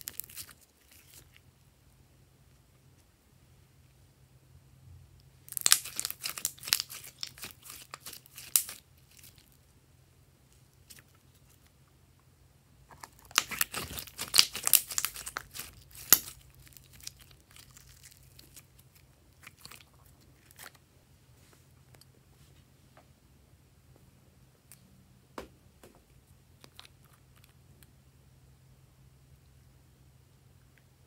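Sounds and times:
slime crackling and popping: 0.0s - 1.4s, 5.5s - 9.6s, 12.9s - 20.8s.

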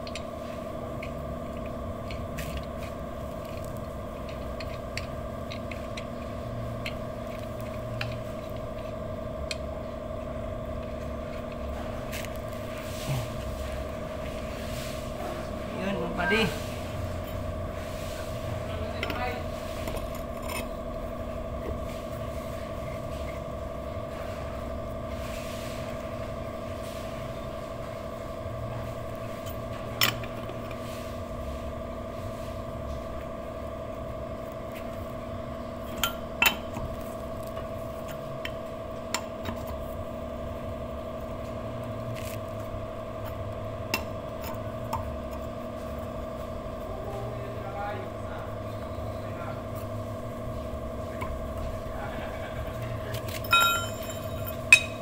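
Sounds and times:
steady tonal hum: 0.0s - 55.0s
metal tool clinking: 53.2s - 55.0s.

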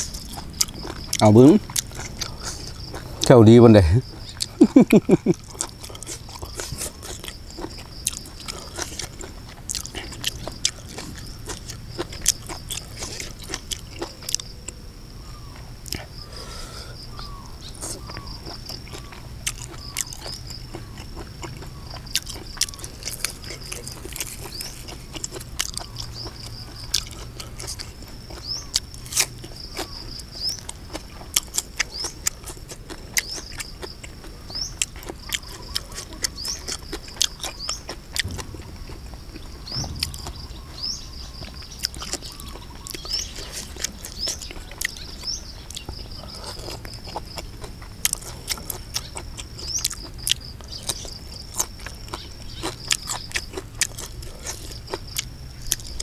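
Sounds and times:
chewing mouth sounds: 0.0s - 3.4s, 4.0s - 14.8s, 17.0s - 56.0s
high-pitched chirring: 38.2s - 42.4s.

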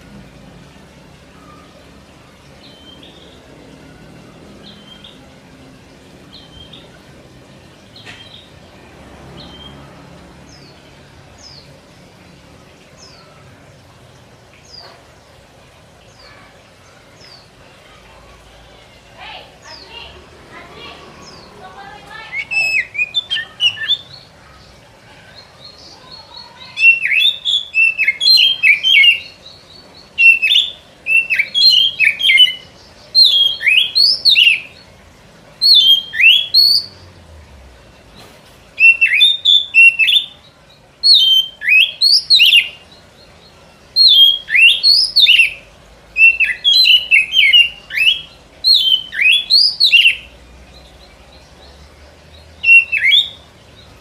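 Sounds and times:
songbird singing high sweeping notes: 20.8s - 34.9s, 35.6s - 37.1s, 38.8s - 54.0s.

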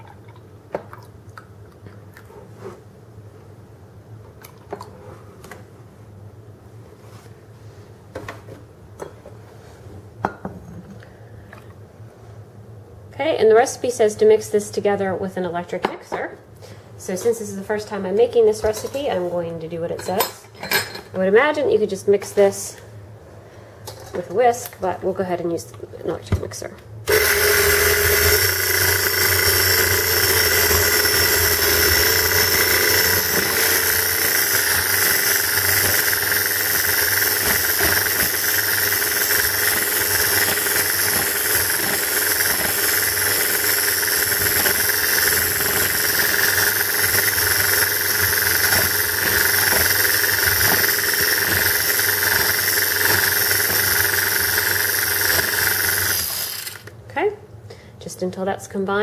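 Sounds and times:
electric hand mixer whipping liquid: 27.1s - 57.0s.

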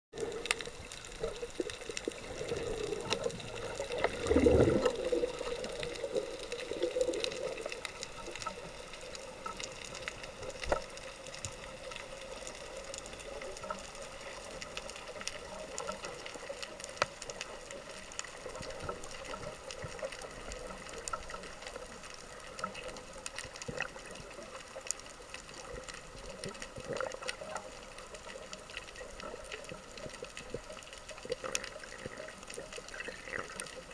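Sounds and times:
underwater hiss: 0.2s - 16.7s
sharp clicks and crackles: 0.2s - 33.9s
swirl of water movement: 0.2s - 33.9s.

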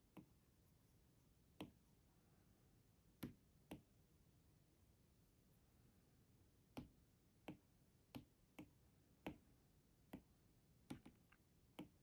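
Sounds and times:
stylus tapping on glass screen: 10.1s - 12.0s.

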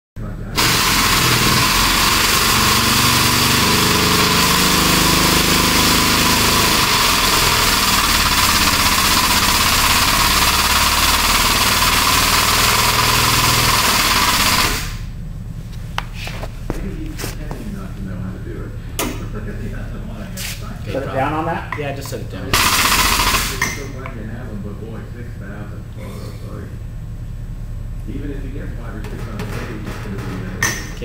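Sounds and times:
low hum: 6.8s - 31.0s.

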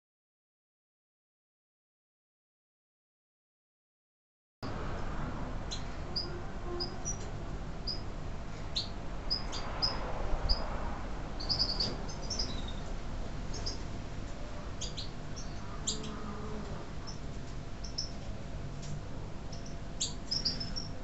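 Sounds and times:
low steady rumble: 4.6s - 21.0s
goldfinches chirping: 5.7s - 8.1s, 8.7s - 10.7s, 11.4s - 12.9s, 13.5s - 13.9s, 14.8s - 16.3s, 17.0s - 18.2s, 19.5s - 21.0s.

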